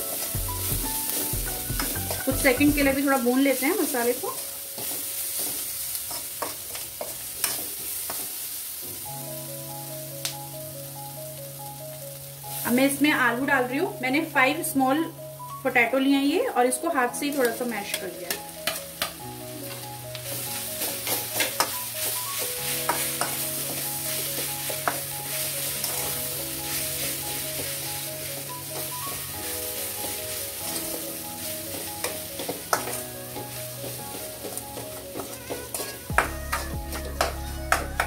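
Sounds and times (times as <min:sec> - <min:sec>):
potatoes sizzling in a pan: 0:00.0 - 0:38.0
soft instrumental music: 0:00.0 - 0:38.0
spoon scraping a pan: 0:00.1 - 0:08.4, 0:18.3 - 0:37.8.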